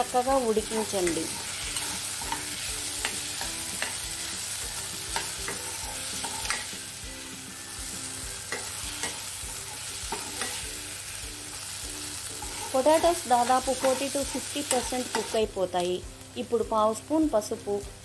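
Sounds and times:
vegetables sizzling in oil: 0.0 - 18.0
spoon scraping and tapping pan: 0.8 - 4.2, 5.0 - 6.8, 8.5 - 10.8, 12.4 - 15.4.

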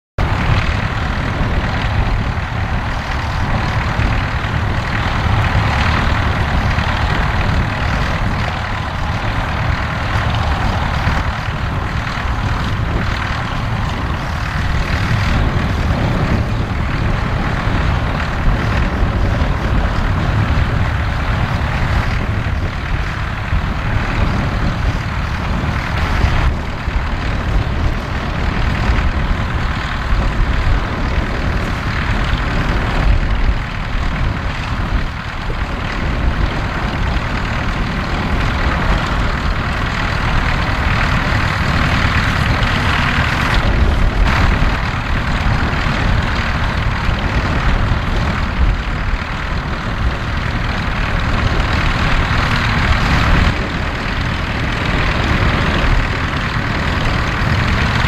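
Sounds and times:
tractor engines droning: 0.2 - 58.0.

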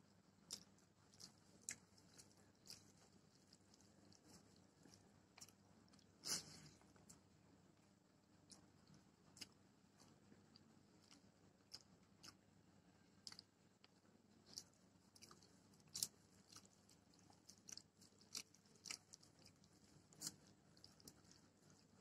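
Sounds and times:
chewing food: 0.0 - 22.0.

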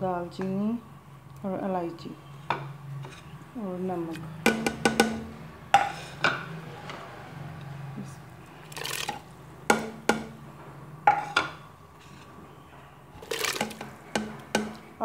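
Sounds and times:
utensil knocking on a pot: 4.5 - 5.9, 9.7 - 10.5, 13.4 - 15.0.

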